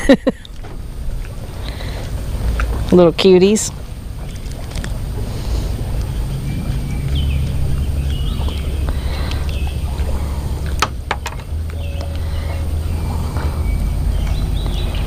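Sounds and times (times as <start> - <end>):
wind buffeting microphone: 0.8 - 15.0
small birds chirping: 1.6 - 15.0.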